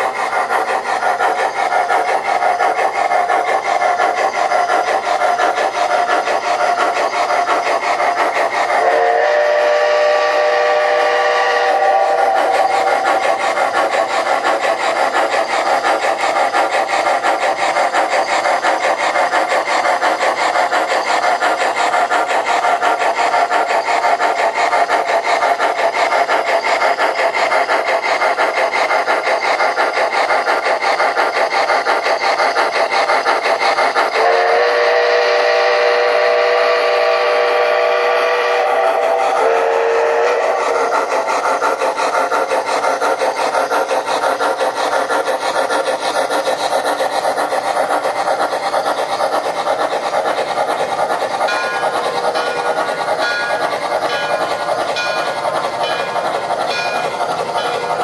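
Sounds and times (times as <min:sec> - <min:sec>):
model train steam chuff: 0:00.0 - 0:58.0
chime steam whistle: 0:06.1 - 0:13.2, 0:34.1 - 0:41.1, 0:51.2 - 0:58.0.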